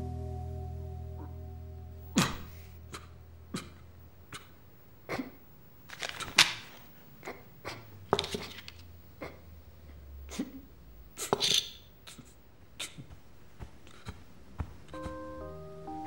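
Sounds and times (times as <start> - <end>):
paper rustle: 5.9 - 6.9, 8.1 - 8.9.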